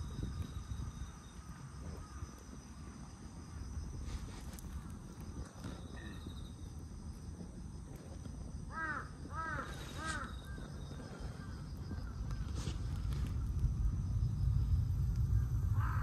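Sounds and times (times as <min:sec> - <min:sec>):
low outdoor rumble: 0:00.0 - 0:16.0
crow cawing: 0:08.7 - 0:10.6, 0:15.4 - 0:16.0.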